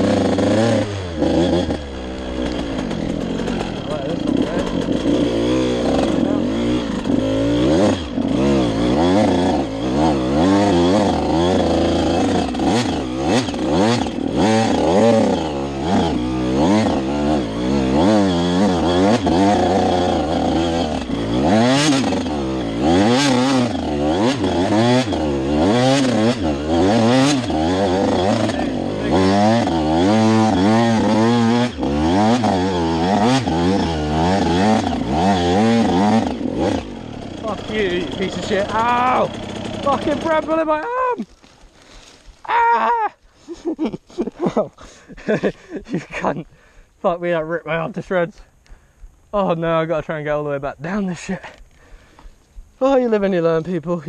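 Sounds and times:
dirt bike engine revving: 0.0s - 42.4s.

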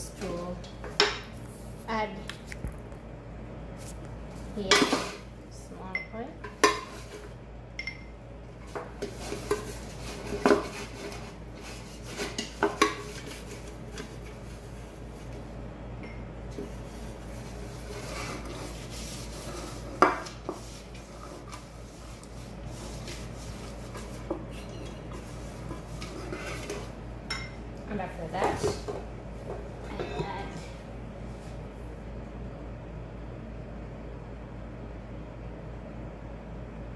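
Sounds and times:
pastry brush rubbing metal pan: 16.5s - 27.0s.

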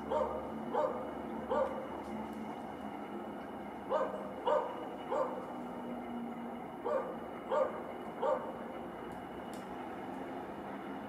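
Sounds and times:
dog barking: 0.0s - 1.9s, 3.9s - 5.5s, 6.8s - 8.6s
steady background hum: 0.0s - 11.0s.

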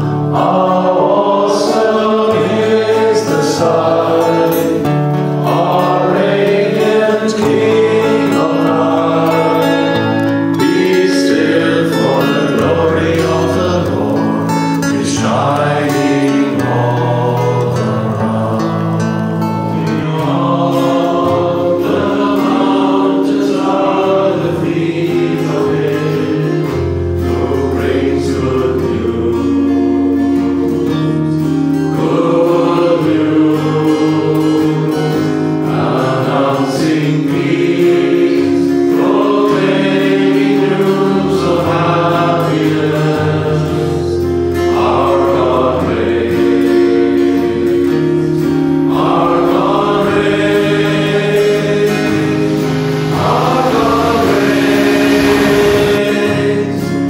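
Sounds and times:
acoustic guitar: 0.0s - 57.0s
voices singing hymn in harmony: 0.0s - 57.0s
sustained low notes: 49.6s - 56.8s.

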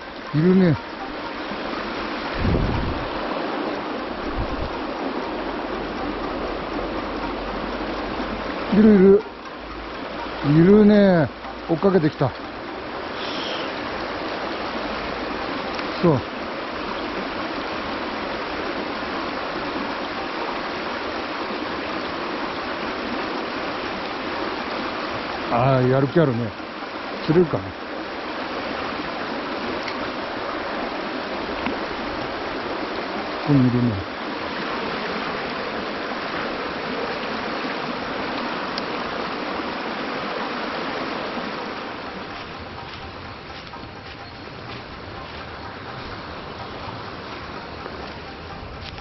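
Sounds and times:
stream water rushing: 0.0s - 49.0s.

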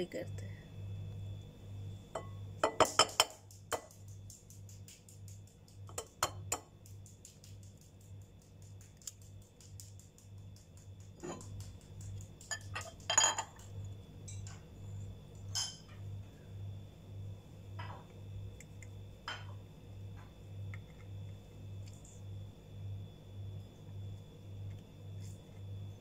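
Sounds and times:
egg knocking on glass bowl: 2.2s - 4.1s, 5.8s - 7.7s.

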